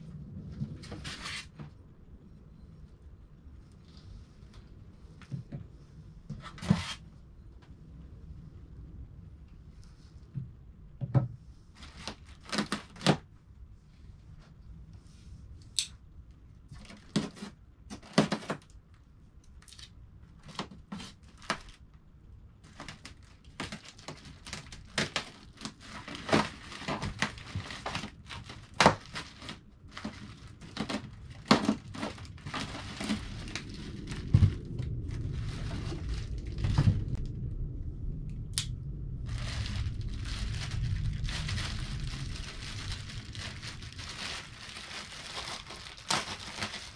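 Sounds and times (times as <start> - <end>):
plastic bags crinkling: 11.8 - 13.2, 22.6 - 37.2, 39.2 - 46.9
styrofoam crackles: 11.8 - 13.2, 20.4 - 21.8, 22.6 - 37.2, 39.2 - 46.9
low rumble: 26.6 - 46.9.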